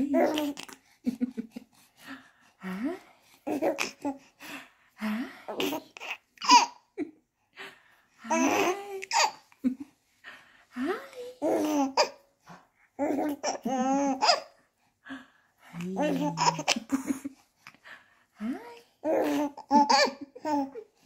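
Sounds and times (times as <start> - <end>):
baby babbling: 0.0 - 0.7, 11.4 - 12.2, 16.0 - 16.8
baby laughing and squealing: 19.1 - 20.7.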